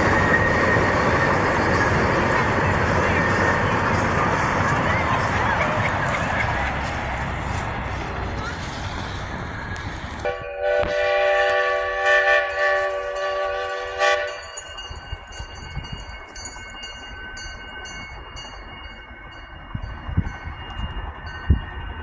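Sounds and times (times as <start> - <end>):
steam locomotive whistle: 10.2 - 14.6.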